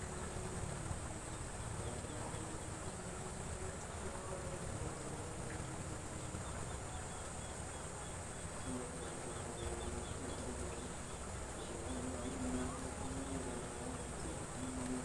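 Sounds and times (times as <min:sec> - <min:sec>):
water rushing in ditch: 0:00.0 - 0:15.0.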